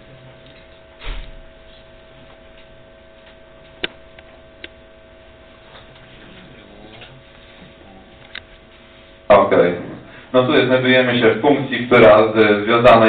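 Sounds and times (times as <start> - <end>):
room hum: 0.0 - 13.0.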